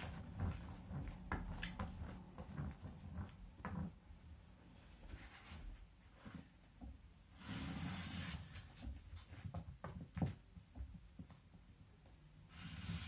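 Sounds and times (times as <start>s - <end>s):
device scraping across paper: 7.4s - 8.7s.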